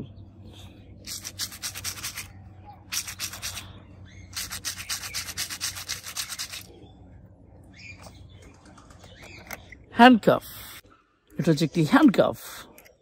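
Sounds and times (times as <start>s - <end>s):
scratchy rubbing of stress balls: 1.0s - 2.3s, 2.9s - 3.7s, 4.3s - 6.7s.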